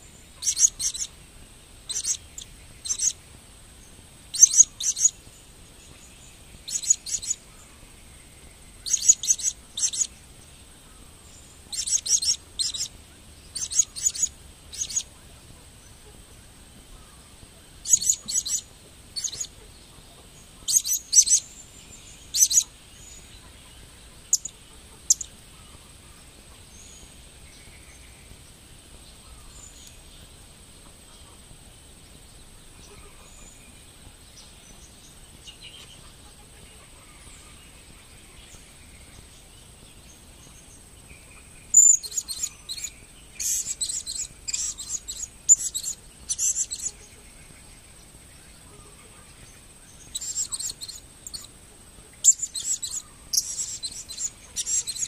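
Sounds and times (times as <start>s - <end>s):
parrot chirping: 0.4s - 1.1s, 1.9s - 3.2s, 4.4s - 5.1s, 6.7s - 7.4s, 8.8s - 10.1s, 11.7s - 12.9s, 13.6s - 15.0s, 17.8s - 18.6s, 19.2s - 19.5s, 22.3s - 22.7s, 41.8s - 47.0s, 50.1s - 51.5s, 52.2s - 55.0s.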